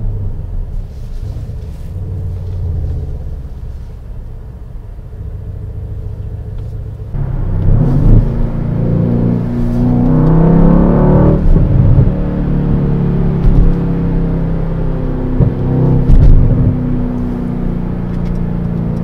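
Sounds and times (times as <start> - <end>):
car engine revving: 7.0 - 19.0.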